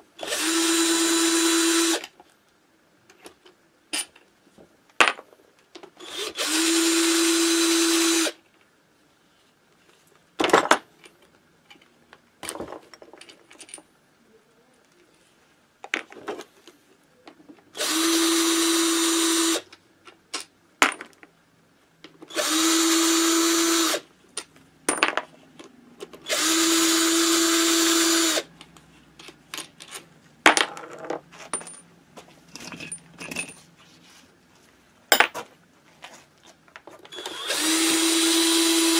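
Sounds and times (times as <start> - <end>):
cordless drill motor whine: 0.2 - 2.0, 6.0 - 8.4, 17.8 - 19.6, 22.3 - 24.0, 26.2 - 28.5, 37.1 - 38.9.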